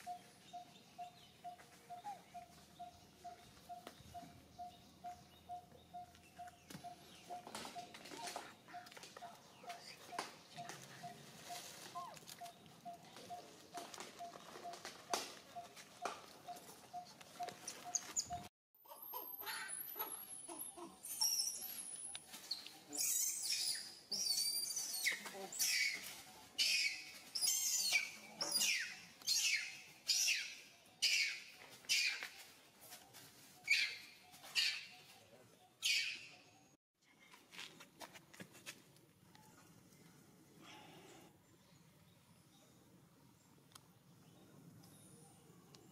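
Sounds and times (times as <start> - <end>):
rustles: 6.1 - 18.5, 21.1 - 29.4, 31.1 - 35.3
monkey screaming: 18.8 - 21.4.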